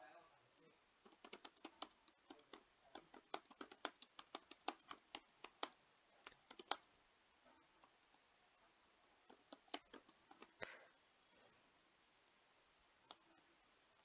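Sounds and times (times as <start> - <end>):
keyboard typing: 1.0 - 6.9, 9.2 - 10.6.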